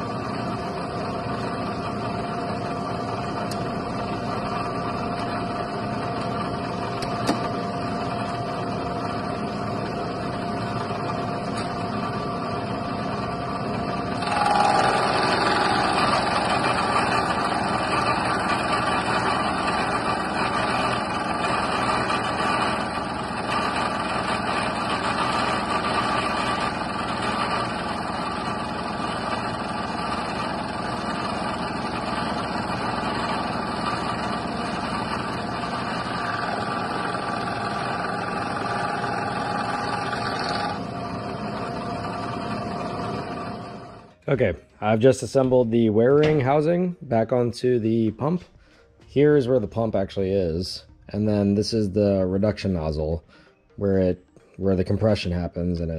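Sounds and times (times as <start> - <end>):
milling machine cutting metal: 0.0 - 44.1.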